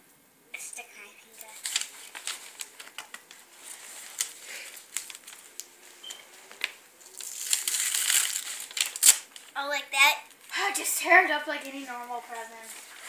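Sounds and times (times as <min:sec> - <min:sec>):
paper crackles and ticks: 0:01.2 - 0:05.8, 0:06.4 - 0:09.6, 0:11.5 - 0:13.0
wrapping paper tearing: 0:01.4 - 0:05.9, 0:06.6 - 0:09.6.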